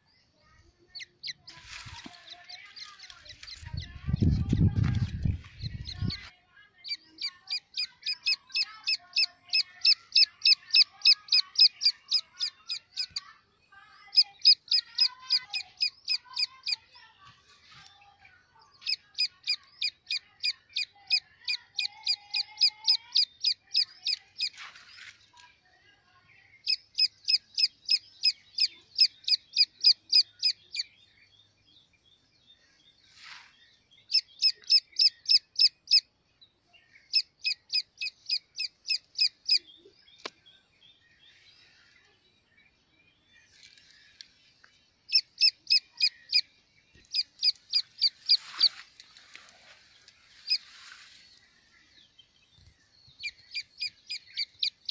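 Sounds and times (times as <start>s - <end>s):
chick peeping: 0.8s - 13.3s, 14.0s - 25.4s, 26.6s - 30.9s, 34.0s - 36.1s, 37.0s - 40.4s, 45.1s - 51.1s, 52.6s - 54.9s.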